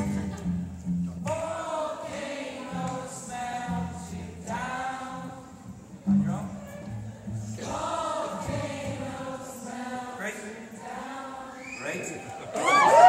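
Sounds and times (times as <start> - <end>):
group of voices singing: 1.2 - 6.1, 7.0 - 12.3.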